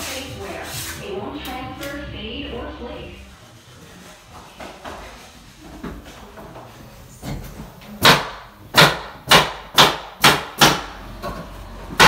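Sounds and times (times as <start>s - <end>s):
hammer strikes: 8.0s - 10.9s.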